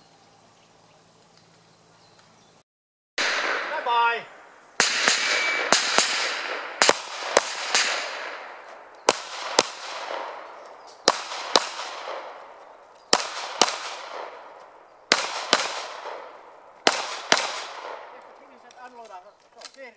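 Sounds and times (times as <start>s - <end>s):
pistol shots echoing: 3.2s - 18.6s.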